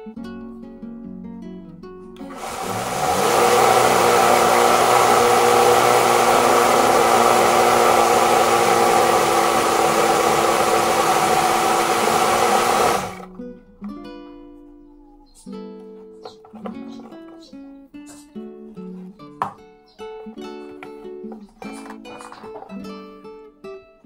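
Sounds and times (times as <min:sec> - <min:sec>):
acoustic guitar music: 0:00.0 - 0:02.3, 0:13.2 - 0:24.0
blender motor running: 0:02.2 - 0:13.3.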